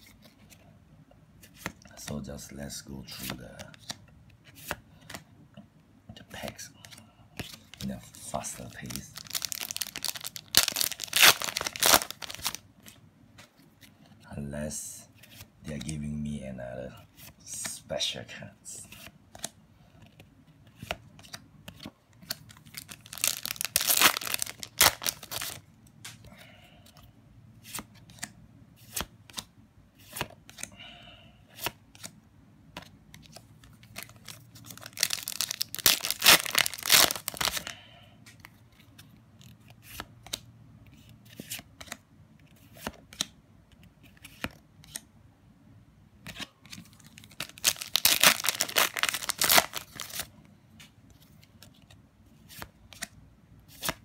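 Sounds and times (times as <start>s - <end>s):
wrapper tearing: 8.8s - 12.6s, 22.4s - 25.6s, 33.9s - 37.7s, 47.2s - 50.3s.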